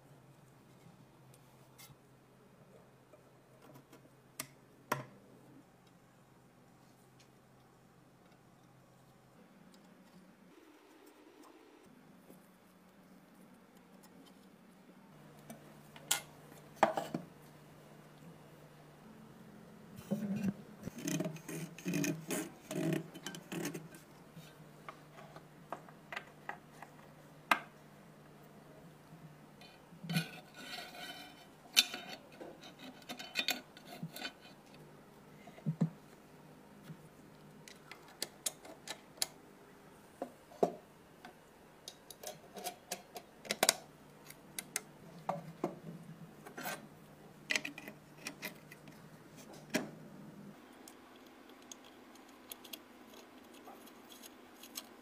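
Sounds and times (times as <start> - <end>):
rasping metal scrape: 20.9 - 24.0, 30.1 - 34.6.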